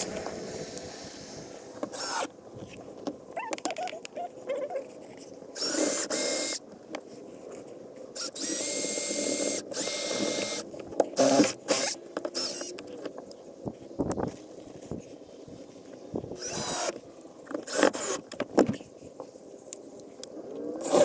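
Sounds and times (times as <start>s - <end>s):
cordless drill driving screws: 1.9s - 2.3s, 5.6s - 6.6s, 8.2s - 10.6s, 11.2s - 12.7s, 16.4s - 17.0s, 17.6s - 18.3s.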